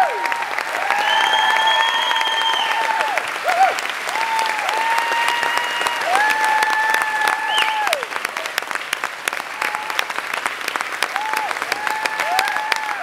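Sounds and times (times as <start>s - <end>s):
audience applause: 0.0s - 13.0s.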